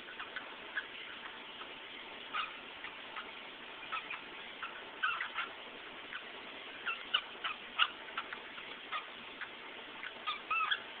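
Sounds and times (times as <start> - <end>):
cockatiel chirping and clicking: 0.1 - 1.7, 3.9 - 10.9.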